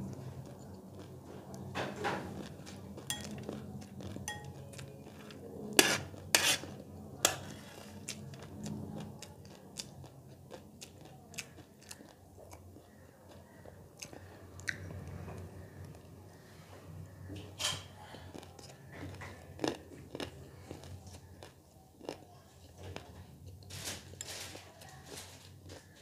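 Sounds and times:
metal spoon scraping a plate: 4.3s - 8.0s.

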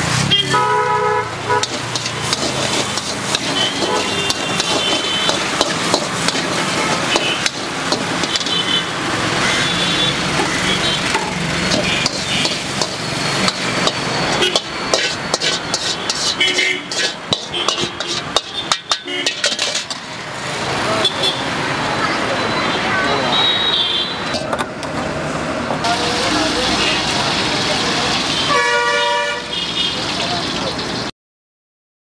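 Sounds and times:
street traffic: 0.0s - 31.1s
vehicle horns honking: 0.2s - 2.0s, 2.7s - 19.6s, 20.9s - 21.6s, 22.4s - 24.5s, 28.3s - 30.0s
metal spatula scraping a wok: 1.4s - 8.9s, 9.6s - 20.6s
spatula banging on wok rim: 1.6s - 8.7s, 10.4s - 20.2s.

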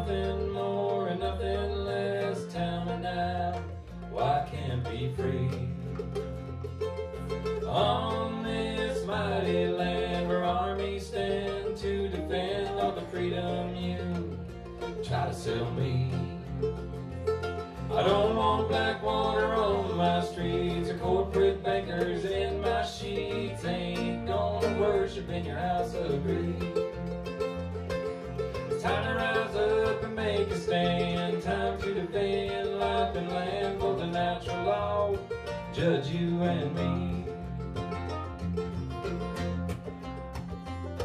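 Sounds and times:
man singing: 0.0s - 6.0s, 7.7s - 14.4s, 15.0s - 16.5s, 17.9s - 26.8s, 28.8s - 37.4s
electric bass: 0.0s - 41.0s
mandolin: 0.0s - 41.0s
strummed acoustic guitar: 0.0s - 41.0s.

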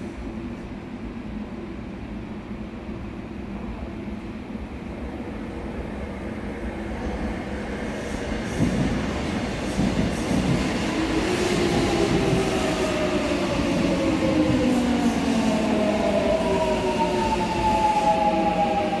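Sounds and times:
electric train pulling in: 4.4s - 19.0s.

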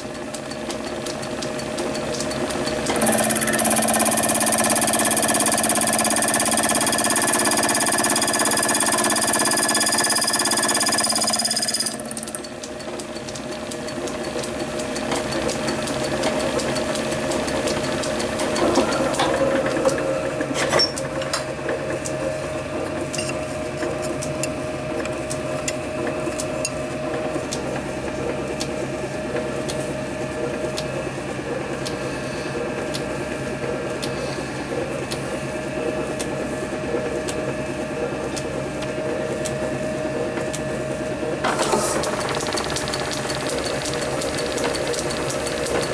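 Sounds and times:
metal lathe cutting brass: 2.9s - 12.4s.

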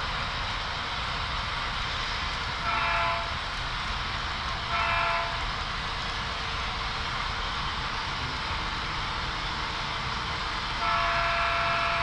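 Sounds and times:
steady rumble and hiss: 0.0s - 12.0s
model train air horn blasts: 2.6s - 3.4s, 4.7s - 5.5s, 10.7s - 12.0s.

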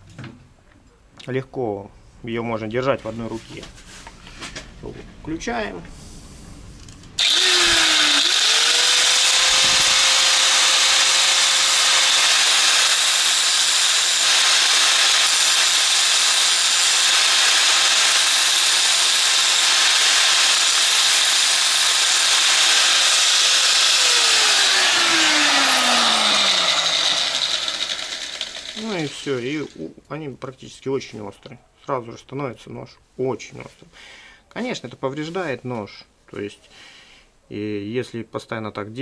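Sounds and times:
angle grinder running: 7.2s - 29.8s.

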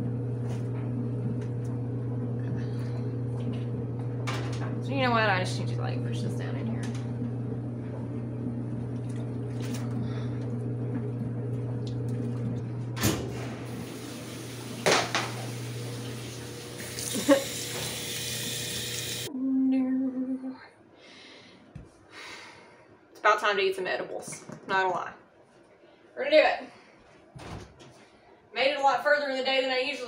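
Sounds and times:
washing machine running: 0.0s - 19.3s.

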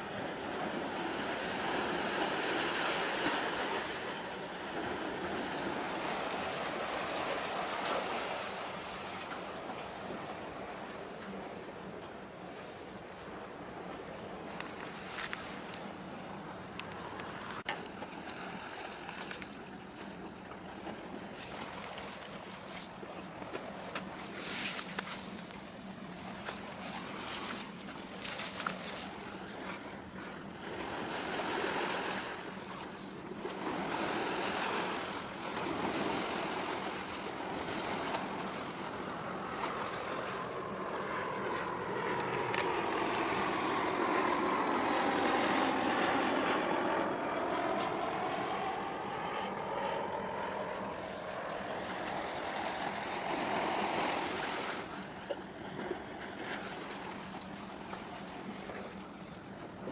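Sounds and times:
boat engines droning: 0.0s - 59.9s
wind buffeting microphone: 33.4s - 59.9s.

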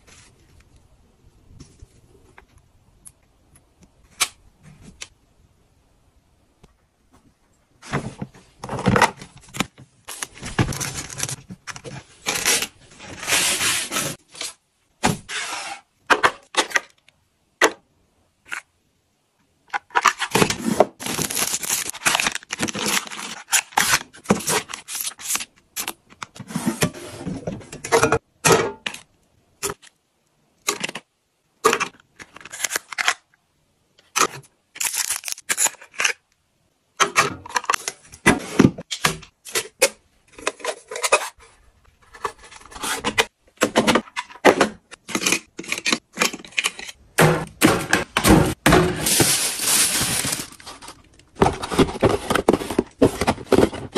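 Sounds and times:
boxes and bottles handled: 7.2s - 16.9s, 19.7s - 29.0s, 37.0s - 53.9s.

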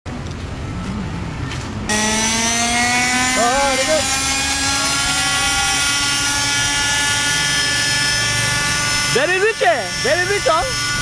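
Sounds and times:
model helicopter engine and rotor whine: 1.9s - 11.0s.

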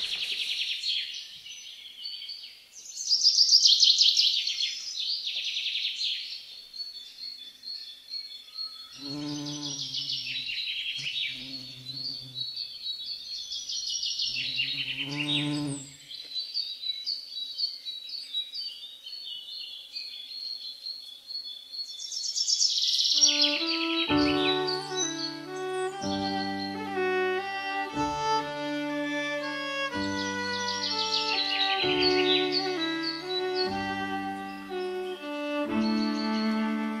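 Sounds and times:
birdsong: 0.0s - 37.0s
low held tones: 23.2s - 37.0s.

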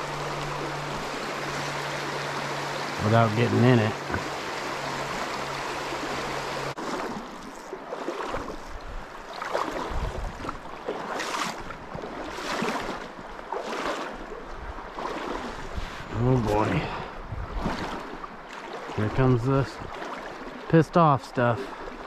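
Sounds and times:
stream rushing over rocks: 0.0s - 6.8s
splashes of wading: 0.0s - 22.0s.

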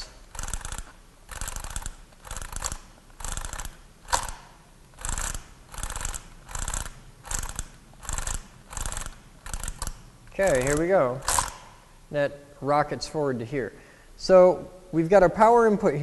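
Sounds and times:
sharp click: 0.0s - 11.8s.

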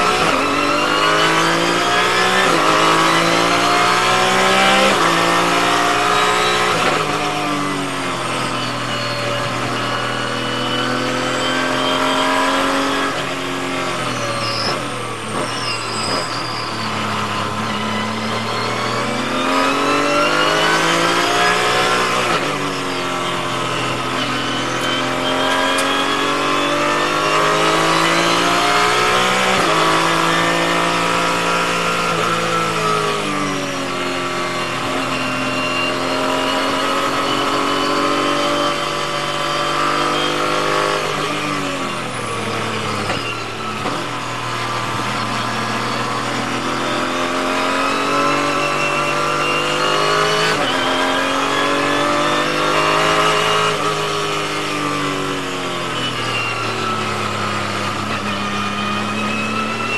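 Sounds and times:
race car engine accelerating: 0.0s - 59.9s.

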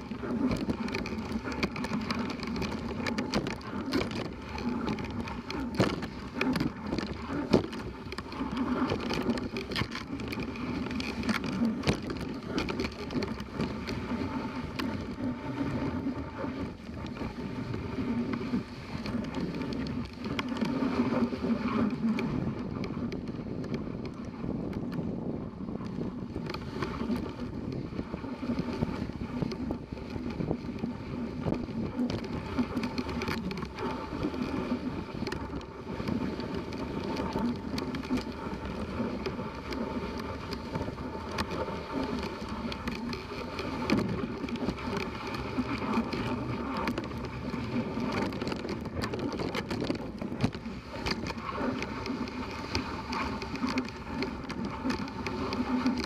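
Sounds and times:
clicks and rattles: 0.0s - 14.1s, 28.6s - 56.0s.

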